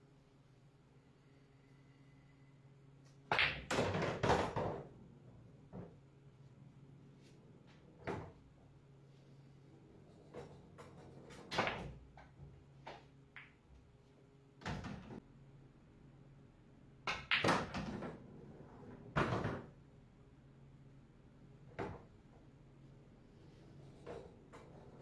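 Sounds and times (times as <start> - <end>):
pool balls clacking together: 3.3 - 4.9, 10.2 - 13.6, 17.1 - 19.7.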